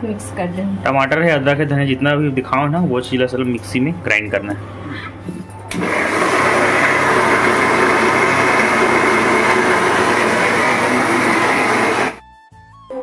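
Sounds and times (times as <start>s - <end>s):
mixer grinder running: 5.7s - 12.2s.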